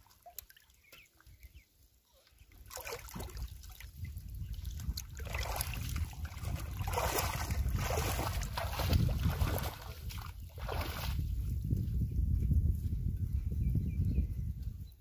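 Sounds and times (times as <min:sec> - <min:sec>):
shallow water sloshing and splashing: 0:00.0 - 0:01.6, 0:02.3 - 0:11.3.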